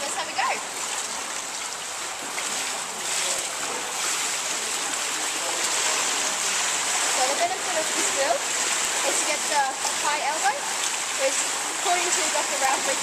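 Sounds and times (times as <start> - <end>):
pool water sloshing and splashing: 0.0 - 13.0.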